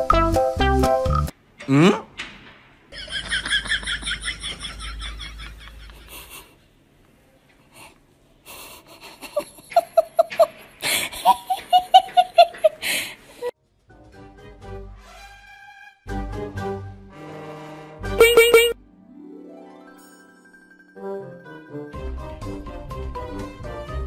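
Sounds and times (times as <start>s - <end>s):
background music: 0.0s - 1.3s, 13.6s - 24.0s
person laughing: 3.0s - 6.6s, 8.5s - 13.5s.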